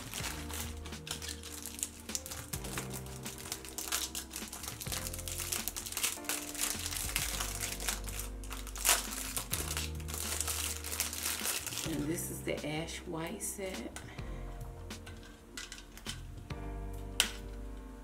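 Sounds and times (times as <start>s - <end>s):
plastic wrapping crinkling: 0.0s - 12.4s
soft background music: 0.0s - 18.0s.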